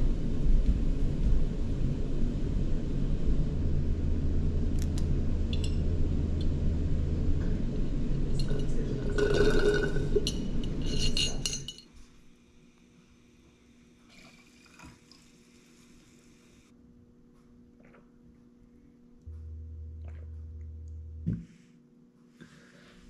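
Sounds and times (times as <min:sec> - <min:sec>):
low rumble: 0:00.0 - 0:11.2, 0:19.2 - 0:21.5
drinking glass clinking: 0:08.4 - 0:11.8.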